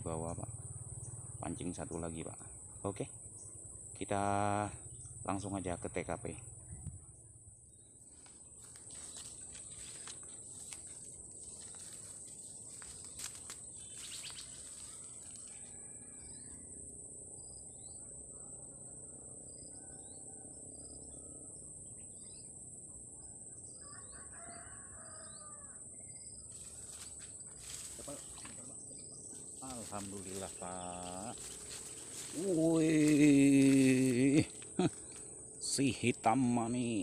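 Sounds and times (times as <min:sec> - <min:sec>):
high insect drone: 0:00.0 - 0:37.0
bird chirps: 0:12.9 - 0:15.4
rooster crowing: 0:15.1 - 0:16.7, 0:19.7 - 0:20.8, 0:23.7 - 0:25.8.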